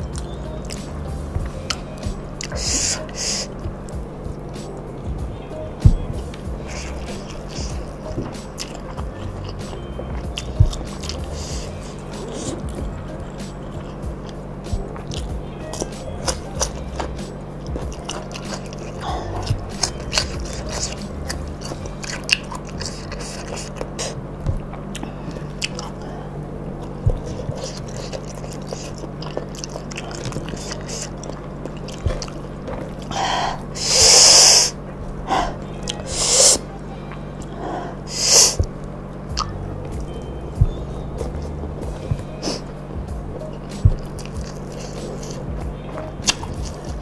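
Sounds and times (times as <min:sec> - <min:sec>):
hissing breaths through mouth: 0:02.4 - 0:03.6, 0:33.1 - 0:36.6, 0:37.5 - 0:38.7
wet chewing and lip smacks: 0:06.3 - 0:26.1, 0:26.7 - 0:34.6.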